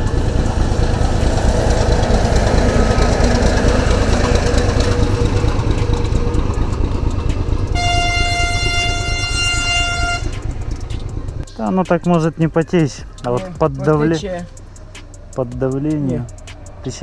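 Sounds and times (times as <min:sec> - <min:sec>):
loud rumbling road noise: 0:00.0 - 0:17.0
vehicle horn long note: 0:07.7 - 0:10.8.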